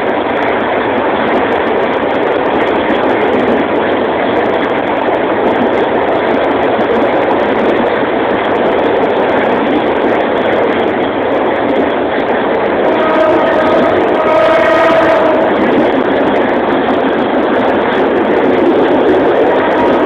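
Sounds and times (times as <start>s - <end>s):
train rumbling and rattling: 0.0s - 20.0s
train horn: 12.8s - 15.8s, 19.4s - 20.0s.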